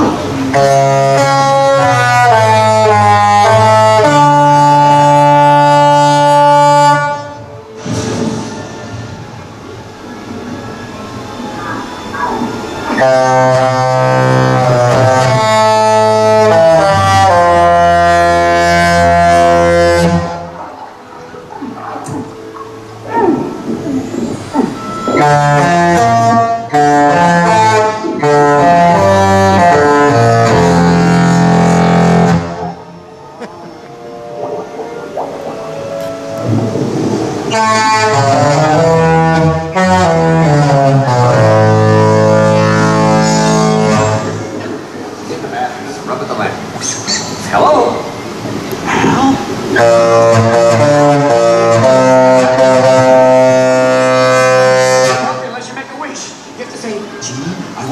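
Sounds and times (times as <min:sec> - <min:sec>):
ship's horn playing a tune: 0:00.0 - 0:10.8, 0:11.4 - 0:21.6, 0:22.4 - 0:46.8, 0:48.0 - 0:56.6.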